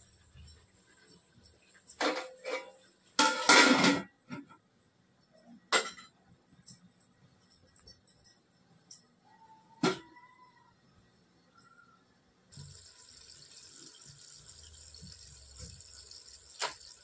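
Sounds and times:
ladle and metal pots clattering: 0.3 - 4.1.

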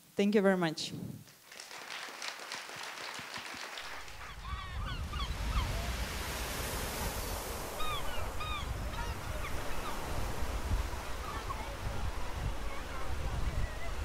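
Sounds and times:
people clapping: 1.3 - 4.7
sea surf: 3.8 - 14.0
gull calls: 4.2 - 6.0, 7.8 - 10.1.

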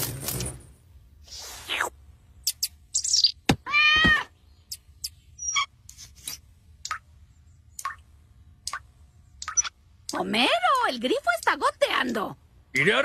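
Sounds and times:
cartoon bird chirps: 1.4 - 5.8
loud wavering squawk: 5.4 - 5.7.

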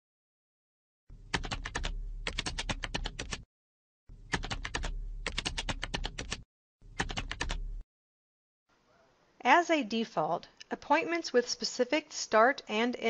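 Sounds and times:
computer keyboard typing: 1.3 - 3.5, 4.3 - 6.4, 7.0 - 7.6.

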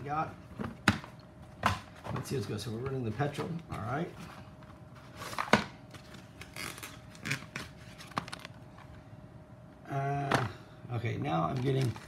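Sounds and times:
rustling handling noise: 11.2 - 12.0.

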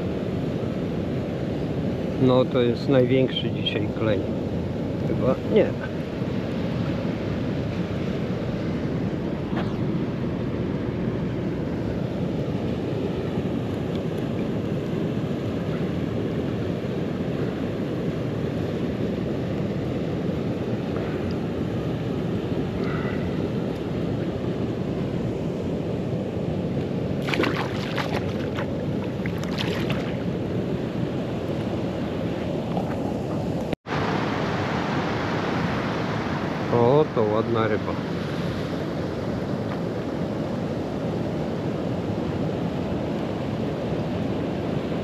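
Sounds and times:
wind: 0.0 - 45.0
rushing water: 26.7 - 40.8.

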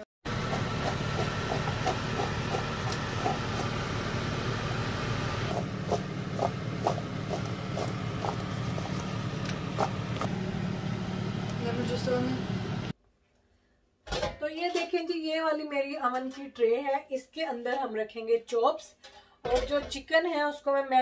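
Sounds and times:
low mechanical hum: 0.3 - 13.0.

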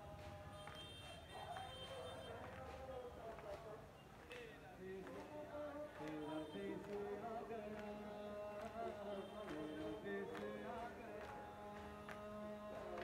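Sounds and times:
man chanting into microphone: 0.0 - 13.0
sharp slaps from crowd: 6.0 - 7.1, 8.6 - 13.0.

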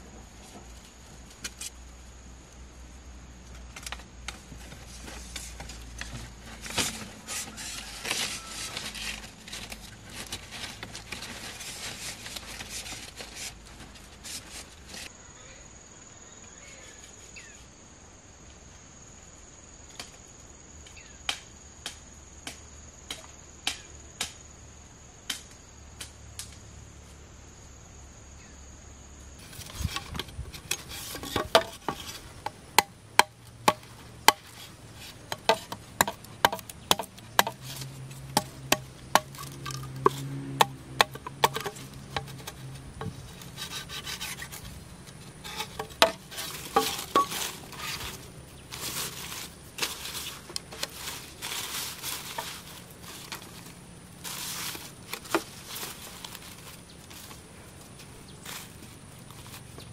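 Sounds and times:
rubbing and rustling: 4.4 - 15.1, 29.4 - 59.9.

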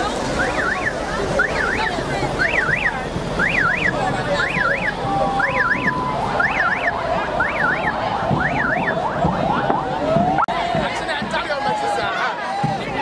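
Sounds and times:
electronic alarm chirping: 0.4 - 9.3.

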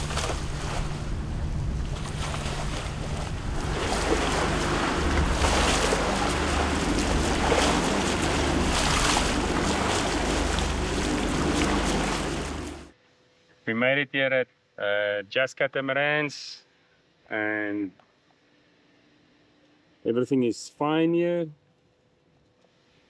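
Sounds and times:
boat engine hum: 0.0 - 12.9
water rushing along hulls: 0.0 - 12.9
wind on microphone: 0.0 - 12.9.

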